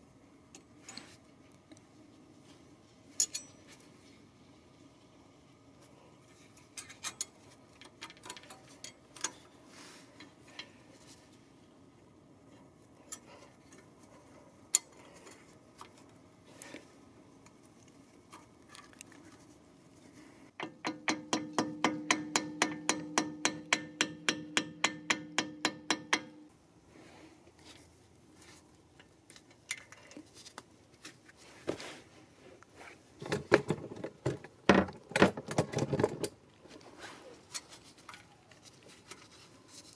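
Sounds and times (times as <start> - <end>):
metal clinks: 3.2 - 3.7
small hammer tapping metal pin: 20.6 - 26.4.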